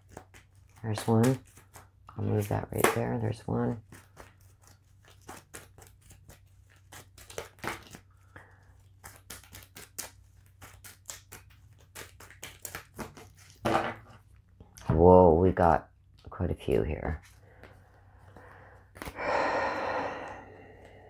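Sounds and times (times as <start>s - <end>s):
cards being shuffled: 0.0s - 8.1s, 8.8s - 14.3s, 17.2s - 19.2s.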